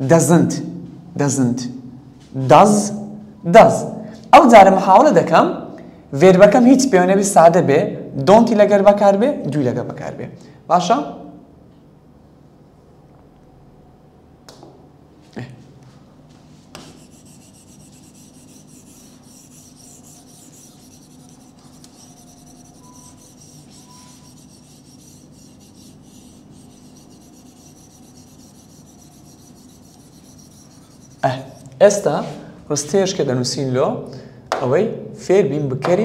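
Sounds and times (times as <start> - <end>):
pen scratching on glass screen: 16.8 - 31.7.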